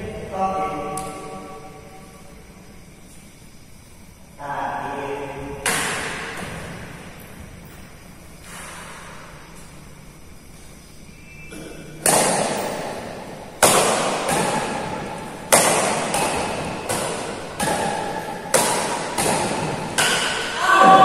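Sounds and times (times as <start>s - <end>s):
rackets striking shuttlecock: 5.6s - 6.8s, 11.5s - 20.6s.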